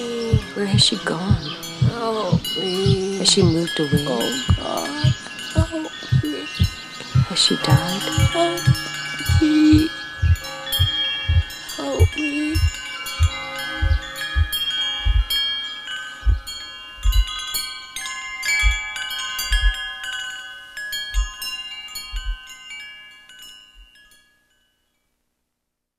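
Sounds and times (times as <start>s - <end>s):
wind chimes ringing: 0.0s - 25.1s
low soft thuds: 0.3s - 15.4s, 16.2s - 17.4s, 18.6s - 19.9s, 21.1s - 21.4s, 22.1s - 22.4s.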